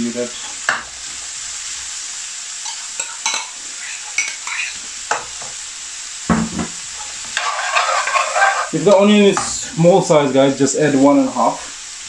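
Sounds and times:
onion sizzling in oil: 0.0 - 12.0
metal spoon scraping pan: 2.6 - 5.5, 7.0 - 9.5
thump: 6.3 - 6.8.

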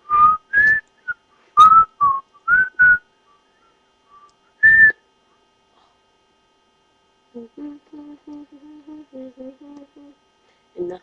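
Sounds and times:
person whistling short notes: 0.0 - 5.0.

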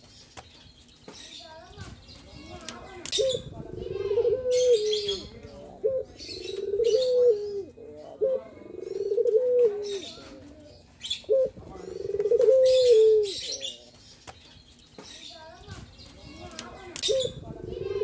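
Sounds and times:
dove cooing: 3.1 - 13.6, 17.0 - 18.0.

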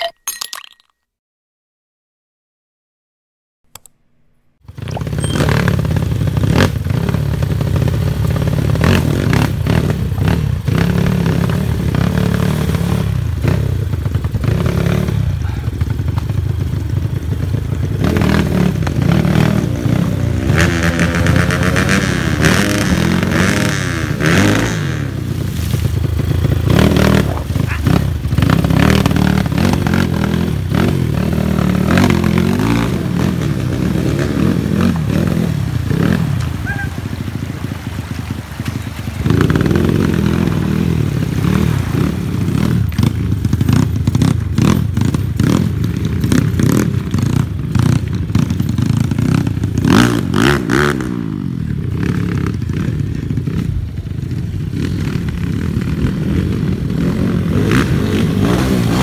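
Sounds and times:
motorbike engine revving: 4.6 - 59.0.

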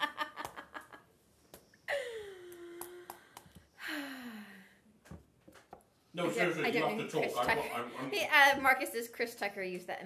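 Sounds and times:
woman laughing: 0.0 - 1.0, 1.9 - 3.0.

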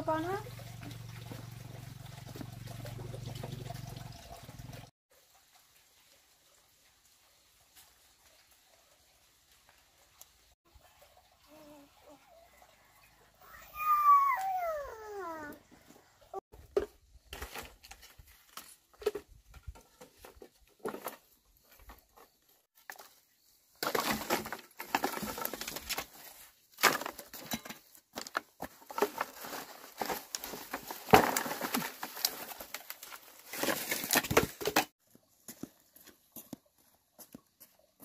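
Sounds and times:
bamboo pieces clattering: 16.6 - 35.0.

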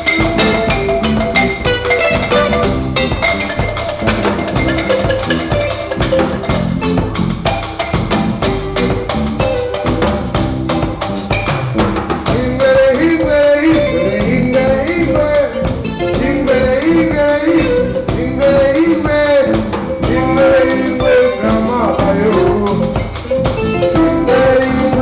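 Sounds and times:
drums: 0.0 - 25.0
electric bass: 0.0 - 25.0
wooden xylophone played fast: 0.0 - 25.0
person singing: 12.3 - 25.0.

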